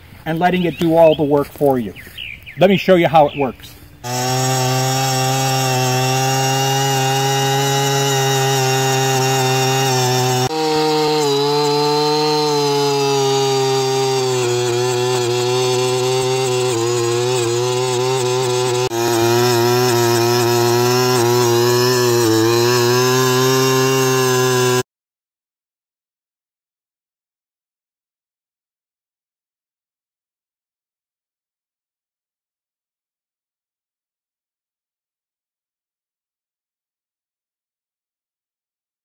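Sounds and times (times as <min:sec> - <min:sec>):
earth auger engine at high throttle: 0:03.7 - 0:24.8.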